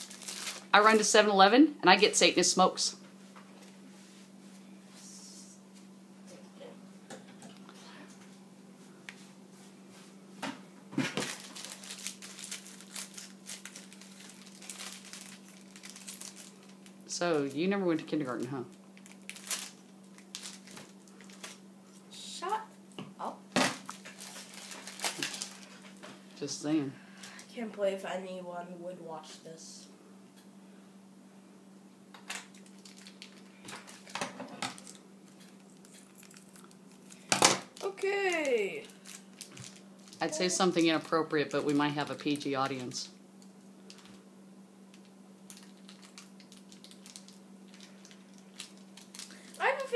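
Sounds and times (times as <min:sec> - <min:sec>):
plastic packaging crinkling: 0:00.0 - 0:01.1, 0:11.2 - 0:17.5, 0:18.7 - 0:21.7, 0:23.7 - 0:26.0, 0:32.3 - 0:42.8, 0:43.4 - 0:44.2, 0:44.9 - 0:49.9.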